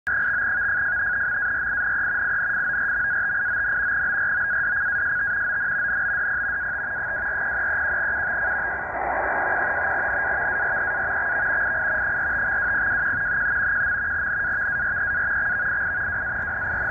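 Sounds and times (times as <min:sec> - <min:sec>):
steady data tone: 0:00.1 - 0:16.9
shortwave hiss: 0:06.8 - 0:16.3.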